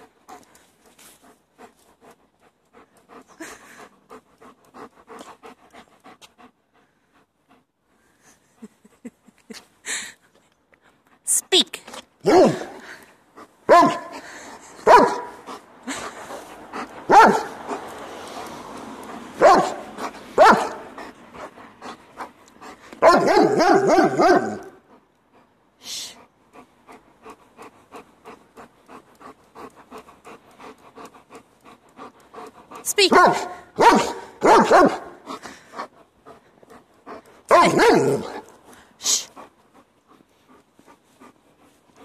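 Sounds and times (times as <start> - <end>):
dog panting: 0.0 - 42.0
dog barking: 12.2 - 12.8, 13.7 - 14.2, 14.8 - 15.4, 17.1 - 17.6, 19.4 - 20.9, 23.0 - 24.8, 33.1 - 35.2, 37.5 - 38.4.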